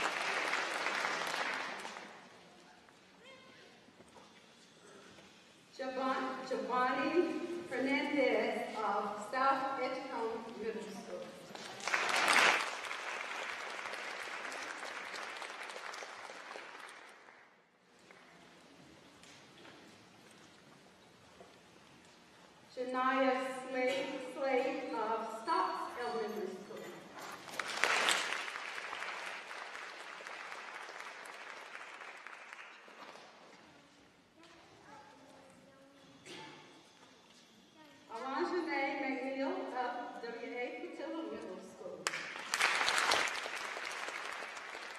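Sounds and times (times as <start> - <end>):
audience applauding: 0.0 - 2.4, 11.5 - 17.6, 27.4 - 33.4, 42.1 - 44.9.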